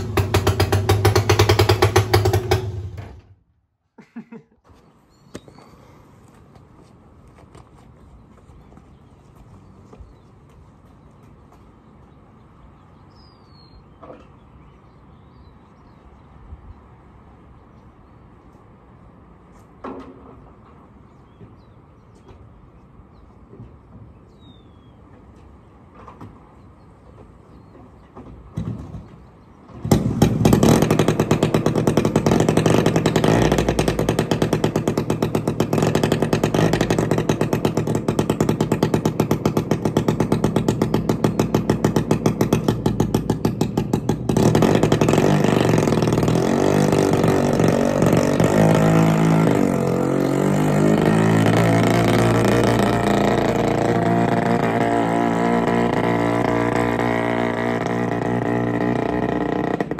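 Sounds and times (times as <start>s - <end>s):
two-stroke engine popping: 0.0s - 3.4s, 29.7s - 59.9s.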